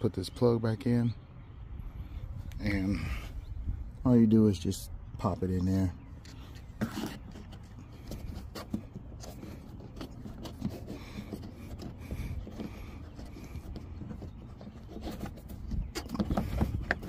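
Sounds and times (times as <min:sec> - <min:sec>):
rubber plug rubbing and scraping: 0:06.1 - 0:17.0.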